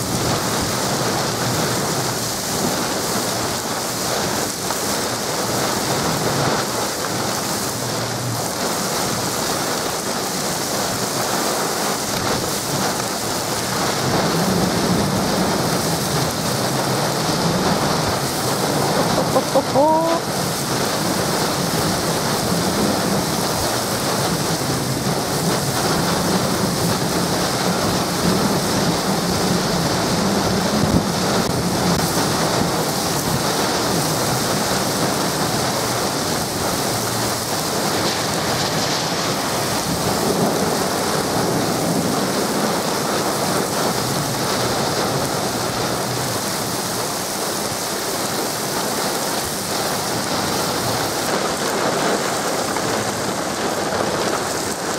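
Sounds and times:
heavy rain: 0.0 - 54.9
storm wind gusts: 0.0 - 54.9.

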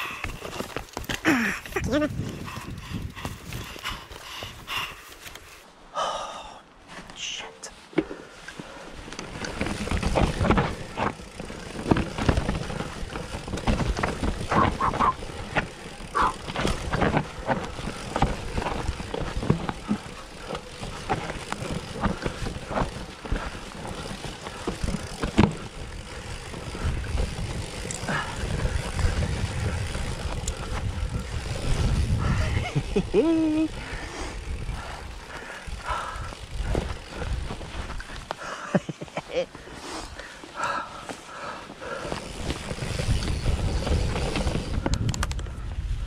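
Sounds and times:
tyres rumbling on dirt: 9.0 - 45.3
bike knocks and rattles: 9.2 - 33.2, 34.4 - 38.3, 41.9 - 45.6.

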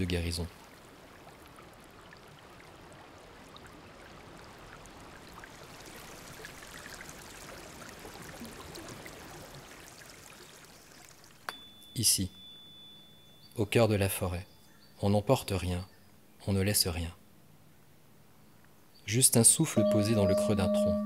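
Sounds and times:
stream water flowing: 0.0 - 12.6.

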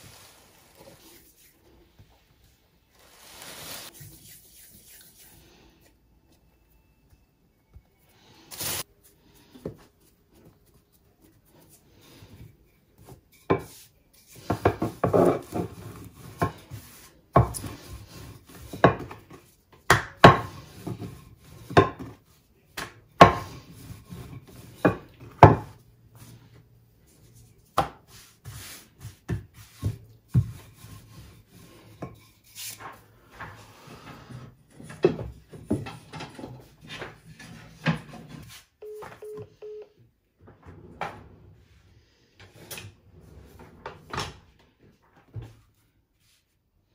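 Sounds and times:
rolling pin rubbing strokes: 0.0 - 5.9, 28.0 - 34.5.

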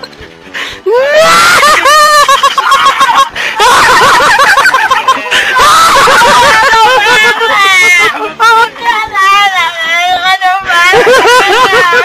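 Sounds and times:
high-pitched warbling laughter: 1.3 - 8.3.

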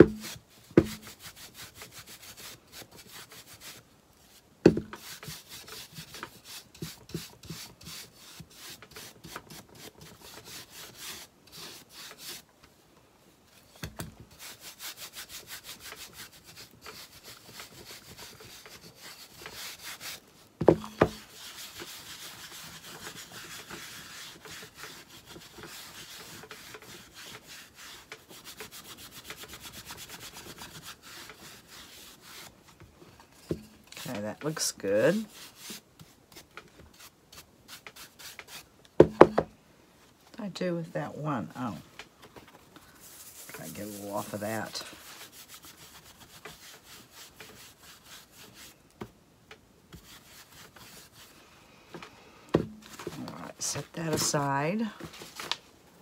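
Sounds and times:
brush scrubbing wood: 0.0 - 12.5, 13.7 - 39.3, 42.8 - 48.8, 49.9 - 51.4, 52.7 - 55.6
sharp wooden knocks: 39.0 - 39.5.

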